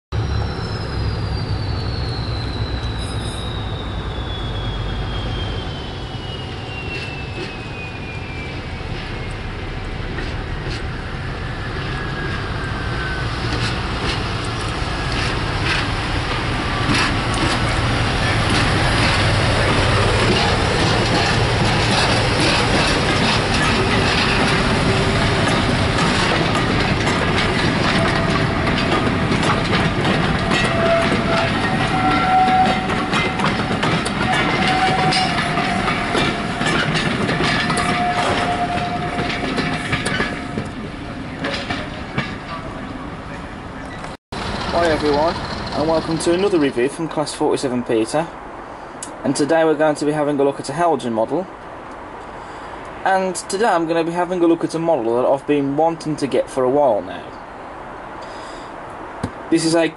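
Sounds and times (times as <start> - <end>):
diesel locomotive engine drone: 0.1 - 54.6
wheels clicking over rail joints: 13.4 - 47.4.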